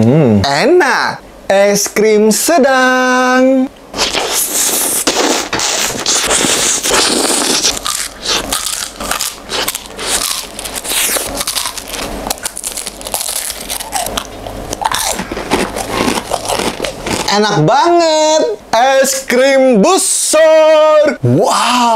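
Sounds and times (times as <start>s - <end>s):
biting and chewing ice cream: 4.0s - 17.6s.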